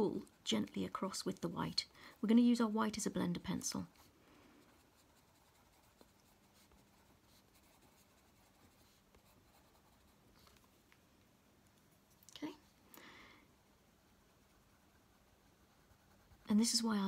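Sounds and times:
pencil scratching on paper: 0.0s - 10.6s, 14.1s - 17.0s.

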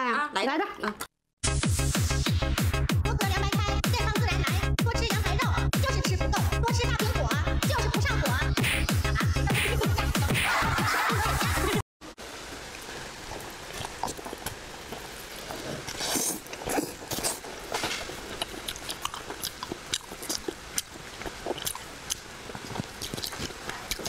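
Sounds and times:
person chewing food: 12.6s - 24.0s.

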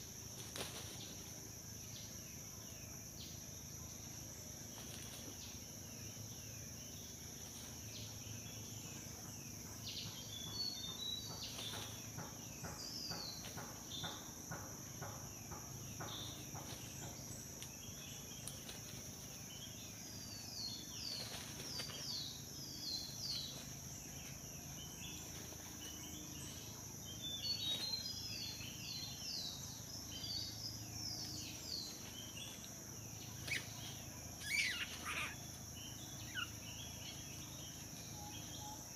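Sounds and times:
high-pitched insect drone: 0.0s - 38.9s
bird chirps: 8.0s - 18.5s, 19.5s - 38.9s.

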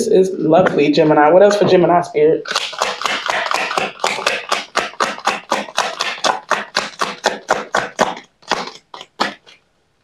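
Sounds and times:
cards shuffling: 2.5s - 9.6s.

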